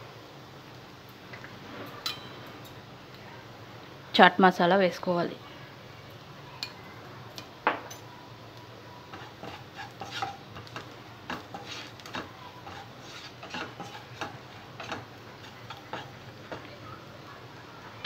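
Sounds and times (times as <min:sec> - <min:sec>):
oil sizzling: 0:00.0 - 0:18.0
spatula scraping in a pan: 0:09.0 - 0:17.2.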